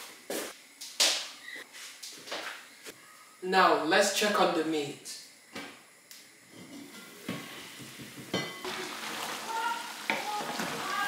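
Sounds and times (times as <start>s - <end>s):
meat being stirred in pot: 8.6s - 11.0s.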